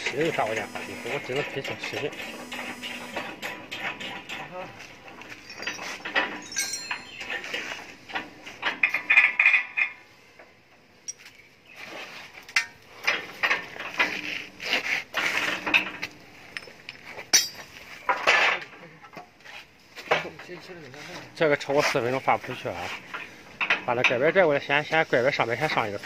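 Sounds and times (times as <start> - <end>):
metal clinks and knocks: 3.4 - 10.0, 11.0 - 11.4, 15.6 - 18.6.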